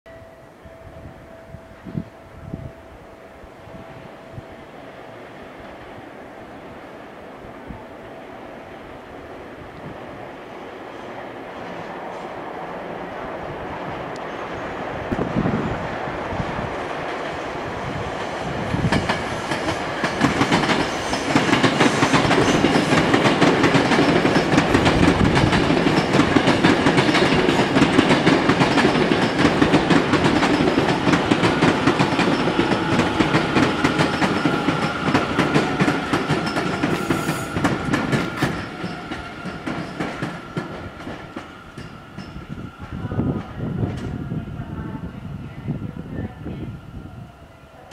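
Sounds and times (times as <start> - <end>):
train wheels clattering: 18.2 - 42.7.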